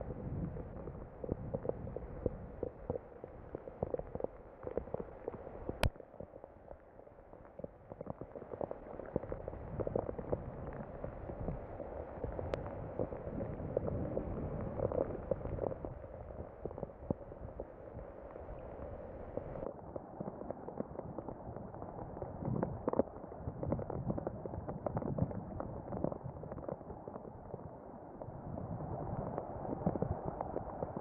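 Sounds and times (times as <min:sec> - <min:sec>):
rain rushing with crackles: 0:00.0 - 0:31.0.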